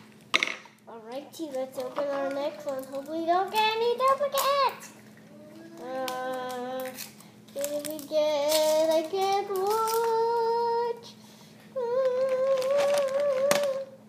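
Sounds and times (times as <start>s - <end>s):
girl singing wordless tune: 0.8s - 14.0s
wrapper crackling: 5.7s - 10.3s, 12.1s - 13.9s.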